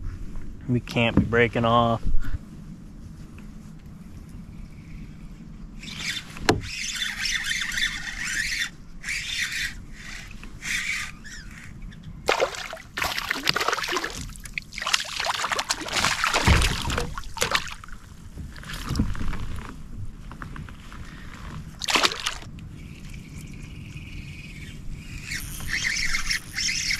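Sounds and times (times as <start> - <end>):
water splashing and sloshing: 12.3 - 19.7, 21.7 - 22.6.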